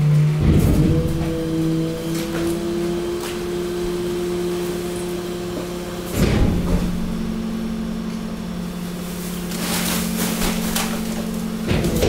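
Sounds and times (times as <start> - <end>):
hydraulic press humming: 0.0 - 12.0
heavy clunk: 0.4 - 2.7, 5.6 - 8.5, 9.6 - 12.0
waste and plastic bags crackling: 1.0 - 12.0.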